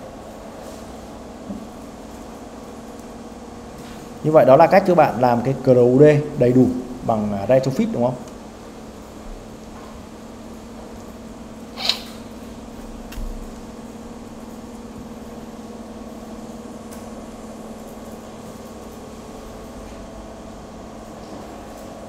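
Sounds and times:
low machine hum: 0:00.0 - 0:22.0
sharp click: 0:11.8 - 0:12.2.

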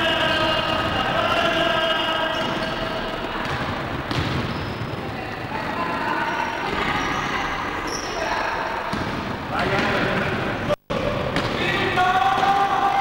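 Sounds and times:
players and spectators calling out: 0:00.0 - 0:03.8, 0:11.1 - 0:13.0
gym hall din: 0:00.0 - 0:13.0.

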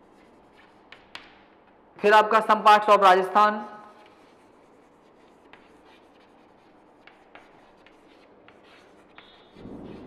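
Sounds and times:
chalk scratching on chalkboard: 0:00.0 - 0:01.5, 0:03.9 - 0:10.0
chalk tapping: 0:00.0 - 0:01.8, 0:03.9 - 0:10.0.

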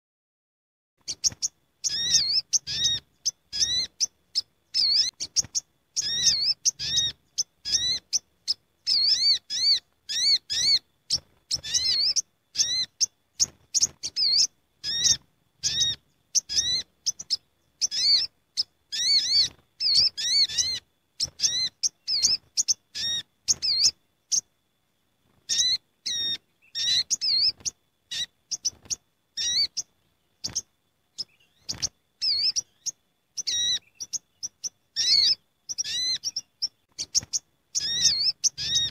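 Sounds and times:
sunbirds chirping: 0:01.0 - 0:38.9.

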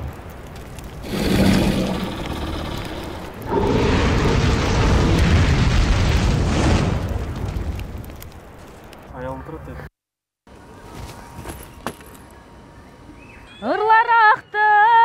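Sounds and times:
rush of flame with rumble: 0:00.0 - 0:09.0.

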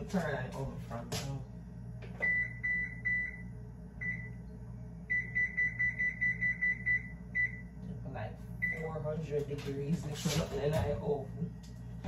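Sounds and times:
oven keypad beeps: 0:02.2 - 0:04.4, 0:05.1 - 0:07.8, 0:08.6 - 0:08.9.

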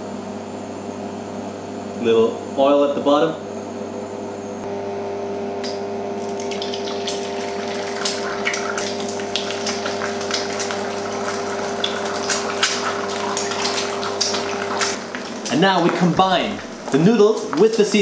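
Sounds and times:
hob humming: 0:01.6 - 0:18.0
eggs sizzling in frying pan: 0:06.2 - 0:18.0.

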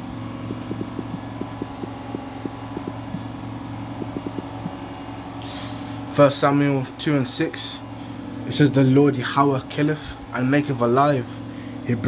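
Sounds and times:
low hum: 0:00.0 - 0:06.1
fingertip taps on touchscreen: 0:00.4 - 0:03.3, 0:03.9 - 0:04.8.

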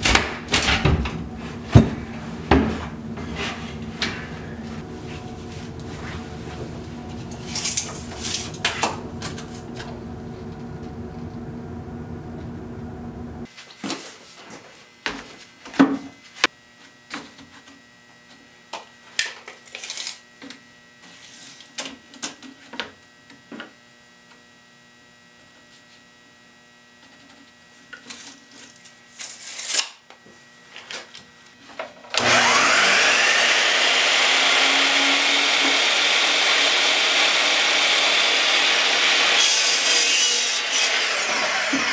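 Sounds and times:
miter saw motor whining: 0:03.0 - 0:13.4, 0:32.2 - 0:39.7.

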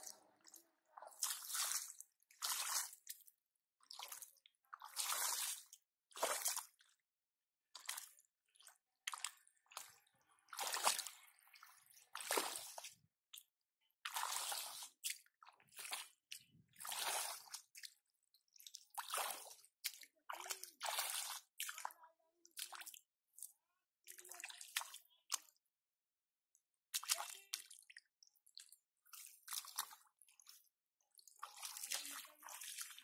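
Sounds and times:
feet squelching in wet mud: 0:00.0 - 0:06.8, 0:07.8 - 0:13.4, 0:14.0 - 0:17.9, 0:18.6 - 0:21.9, 0:24.4 - 0:25.5, 0:26.9 - 0:30.6, 0:31.2 - 0:33.0.

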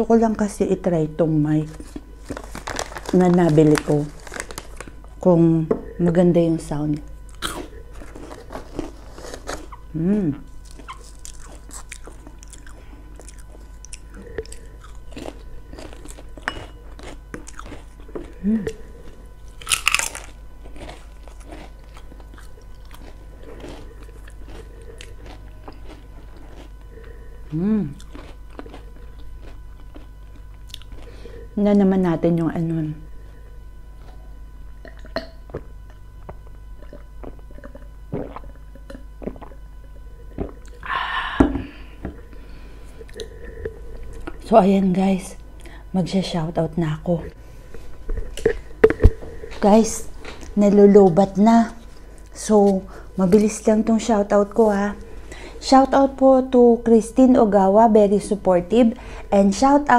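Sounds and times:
low steady hum: 0:00.0 - 0:59.9
potato chips crunching: 0:01.6 - 0:05.1, 0:07.0 - 0:09.8, 0:10.6 - 0:18.5, 0:19.1 - 0:31.1
person gulping a drink: 0:12.5 - 0:15.4, 0:34.8 - 0:42.2, 0:48.1 - 0:49.6
wet mouth sounds: 0:34.8 - 0:39.6.

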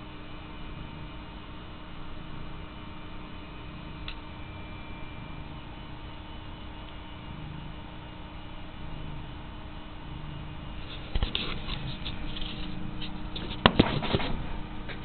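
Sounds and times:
sharp knocks on camera: 0:13.6 - 0:14.4.

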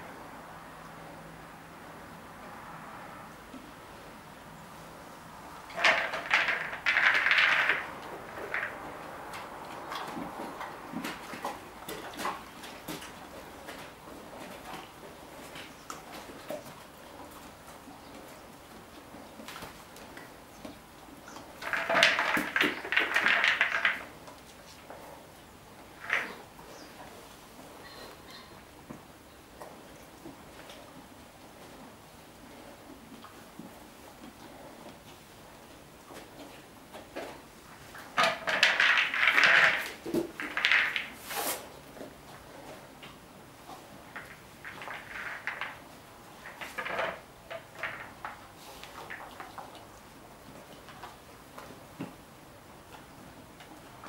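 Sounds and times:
treats rattling in plastic ball: 0:05.7 - 0:12.5, 0:21.6 - 0:24.2, 0:37.9 - 0:41.2, 0:44.1 - 0:49.7.

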